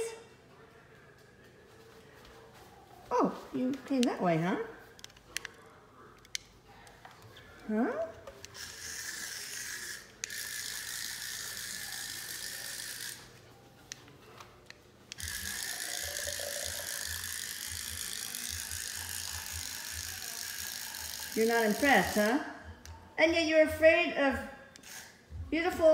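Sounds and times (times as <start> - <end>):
toy motor and gears whirring: 8.4 - 13.3, 15.1 - 22.4, 24.8 - 25.2.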